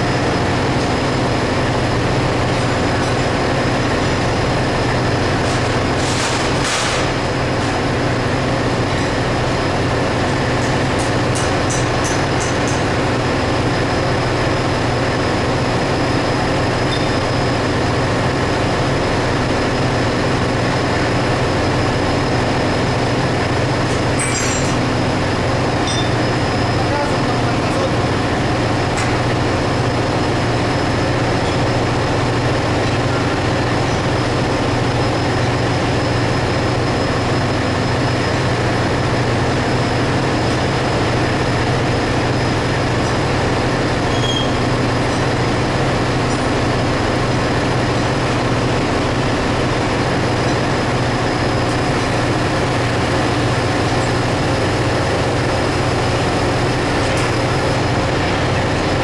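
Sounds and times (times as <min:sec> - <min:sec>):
engine room machinery drone: 0:00.0 - 0:59.0.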